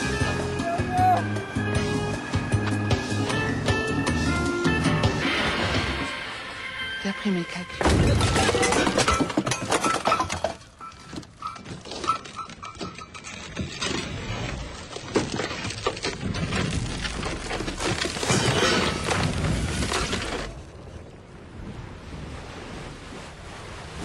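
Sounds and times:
clattering crashing impacts: 7.8 - 20.5.

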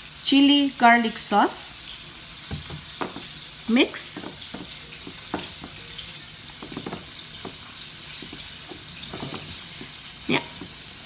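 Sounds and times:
spatula stirring thick sauce: 4.2 - 11.0.

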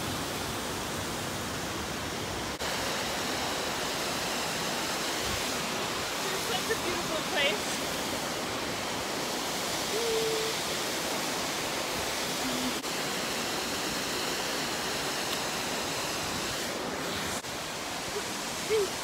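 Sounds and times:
cascading mountain water: 0.0 - 19.0.

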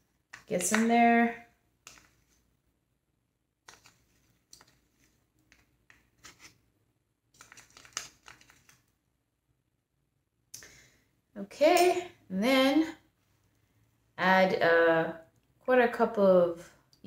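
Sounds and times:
spoon scraping plastic cup: 3.7 - 6.6.

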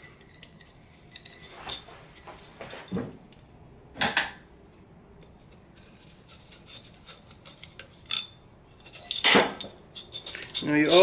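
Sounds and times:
metal parts clicking and clinking: 0.0 - 3.5, 5.2 - 11.0
loud metal clank: 9.0 - 10.4.

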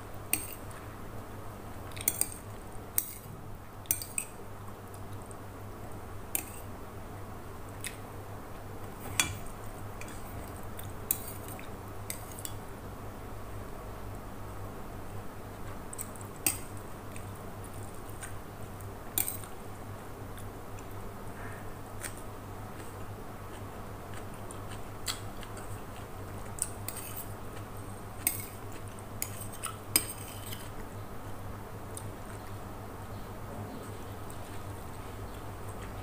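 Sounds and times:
spoon scraping ceramic plate: 29.2 - 30.7.

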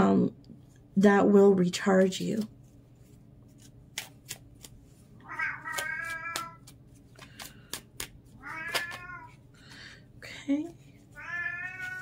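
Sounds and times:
cards clicking and tapping: 3.5 - 4.8, 5.5 - 9.9
cat meowing: 5.2 - 6.6, 8.4 - 9.4, 11.2 - 12.0.

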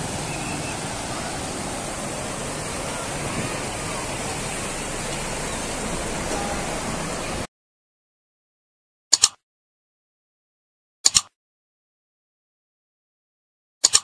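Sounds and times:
river rapids rushing over rocks: 0.0 - 7.5.

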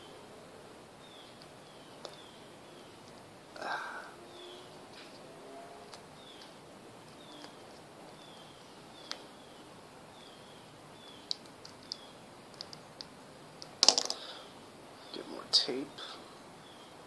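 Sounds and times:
bird chirps: 1.0 - 3.0, 4.3 - 4.8, 6.2 - 12.2
hands handling clicks and rustles: 11.2 - 14.3.

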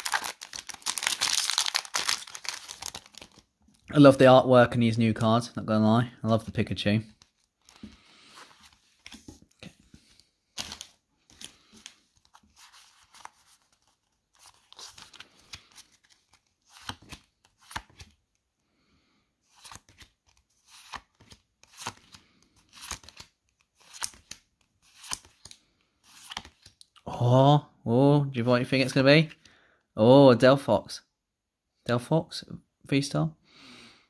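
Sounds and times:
foil wrapper crinkling and tearing: 0.0 - 3.5
trading cards being handled: 0.0 - 3.9, 6.5 - 18.2, 19.5 - 26.9.

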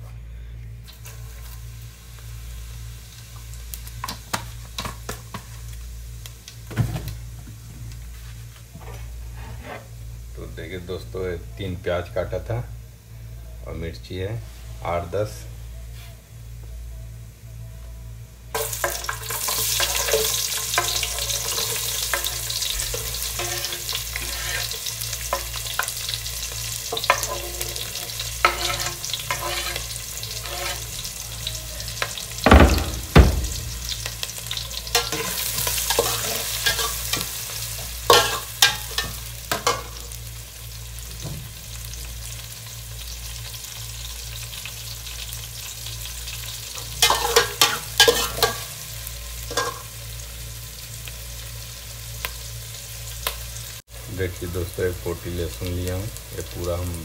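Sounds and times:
onions sizzling in hot oil: 0.8 - 13.2, 18.5 - 57.0
metal spatula scraping a pot: 9.3 - 9.9, 18.6 - 26.2, 26.8 - 31.1, 34.9 - 37.3, 38.1 - 39.9, 47.0 - 48.7
heavy knock on pot: 32.5 - 33.8.

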